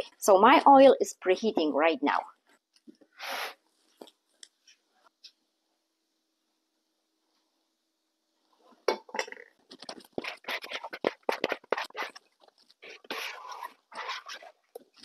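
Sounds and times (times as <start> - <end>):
plastic scraper scraping bowl: 9.8 - 12.2, 12.8 - 14.6.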